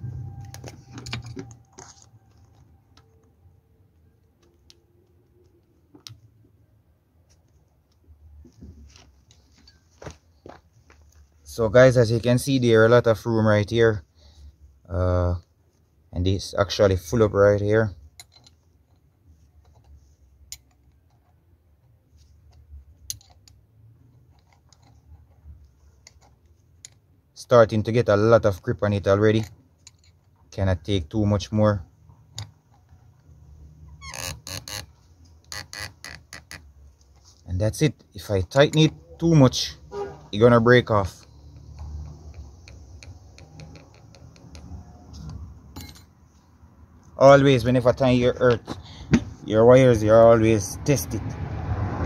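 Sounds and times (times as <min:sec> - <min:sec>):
clicks of wire and clamp handled: 0:22.4 - 0:23.6
spanner clicking on metal bolt: 0:23.0 - 0:23.6, 0:41.6 - 0:46.1.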